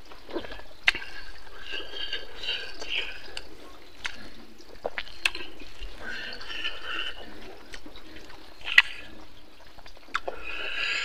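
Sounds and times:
wet chewing and lip smacking: 0:00.0 - 0:11.0.

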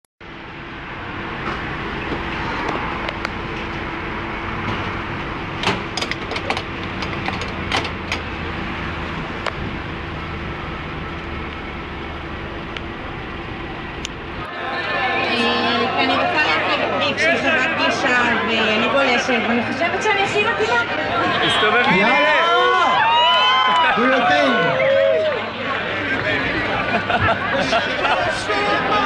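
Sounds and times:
car engine running: 0:00.2 - 0:14.5
city street traffic: 0:00.2 - 0:29.0.

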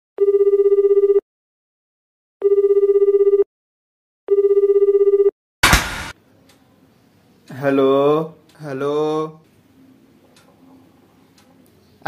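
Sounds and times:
telephone ringing: 0:00.2 - 0:01.2, 0:02.4 - 0:03.5, 0:04.3 - 0:05.3.

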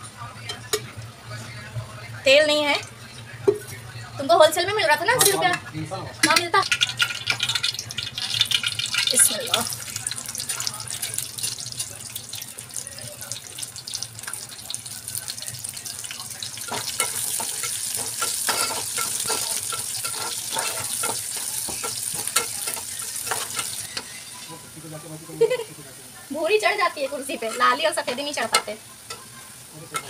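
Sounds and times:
onions sizzling in hot oil: 0:04.2 - 0:30.0
spatula scraping and stirring: 0:16.6 - 0:24.5.

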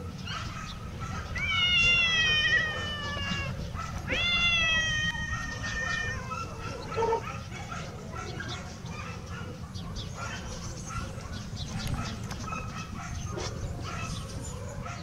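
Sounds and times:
cat meowing: 0:01.3 - 0:07.2.

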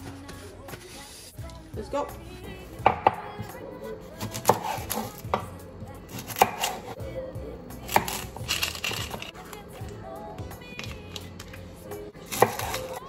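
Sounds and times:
knife chopping on wooden board: 0:02.8 - 0:03.2, 0:04.2 - 0:05.5, 0:06.2 - 0:06.8, 0:12.3 - 0:12.9.

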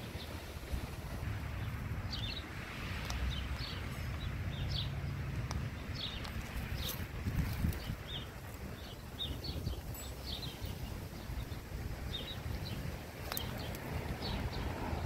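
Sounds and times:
songbirds chirping: 0:00.0 - 0:15.0
steady low rumble: 0:10.4 - 0:15.0.

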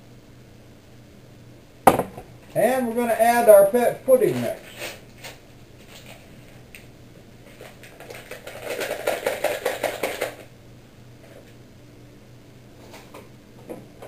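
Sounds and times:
paper pouch crinkling: 0:07.4 - 0:10.5.

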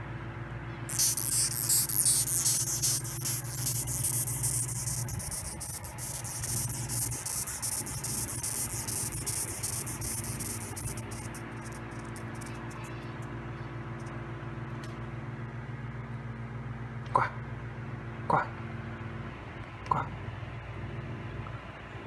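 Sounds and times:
low steady hum: 0:00.0 - 0:22.0
beetle stridulating: 0:00.9 - 0:12.9.

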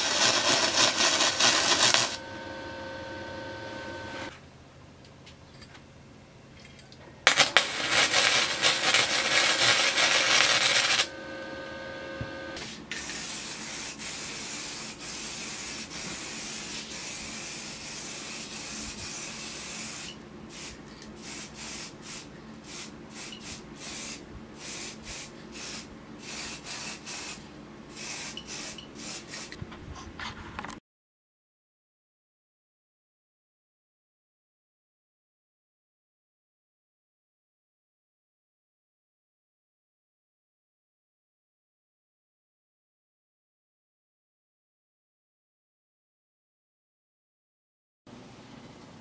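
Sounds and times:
aerosol spray can hissing: 0:00.0 - 0:02.2, 0:07.3 - 0:11.1, 0:12.9 - 0:29.6.

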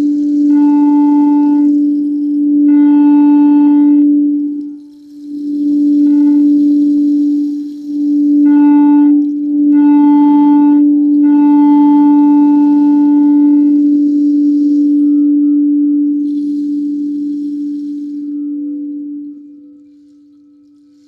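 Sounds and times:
singing bowl ringing: 0:00.0 - 0:21.0.

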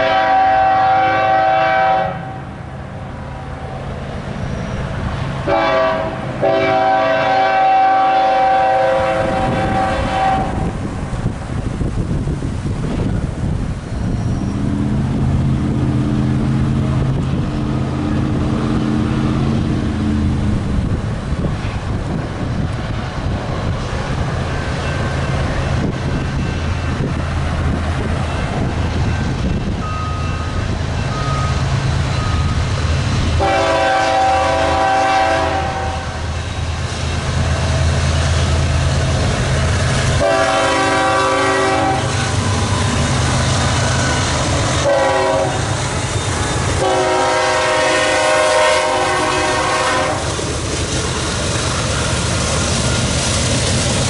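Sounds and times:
locomotive air horn blasts: 0:00.0 - 0:02.6, 0:05.4 - 0:10.8, 0:33.4 - 0:36.3, 0:40.2 - 0:42.6, 0:43.8 - 0:45.8, 0:46.8 - 0:50.3
diesel locomotive engine rumble: 0:00.0 - 0:54.0.

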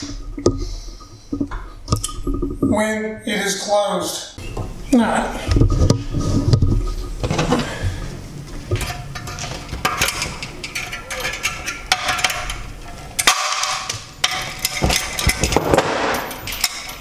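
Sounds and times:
metallic clicks and knocks: 0:08.7 - 0:17.0.

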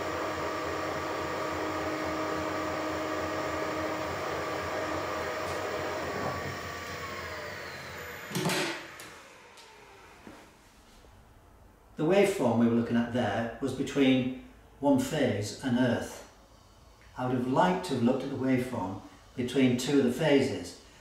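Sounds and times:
electric motor whining: 0:00.0 - 0:10.3.

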